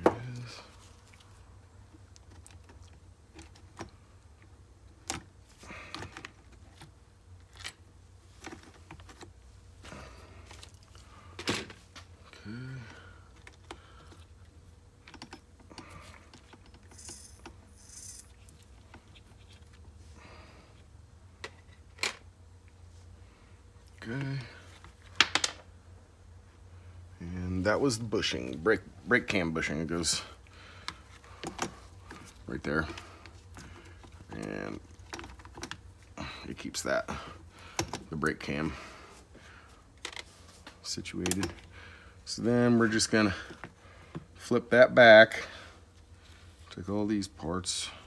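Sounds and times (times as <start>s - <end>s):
screwdriver and metal parts clicking: 16.3s - 18.5s.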